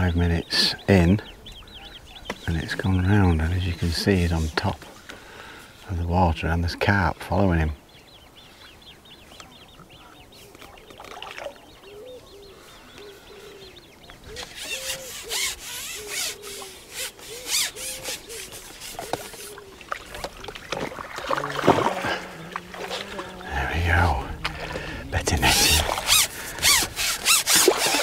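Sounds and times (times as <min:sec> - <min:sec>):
birds chirping faintly: 0:00.0 - 0:28.0
fish splashing in water: 0:10.9 - 0:11.7, 0:18.9 - 0:23.5, 0:27.4 - 0:28.0.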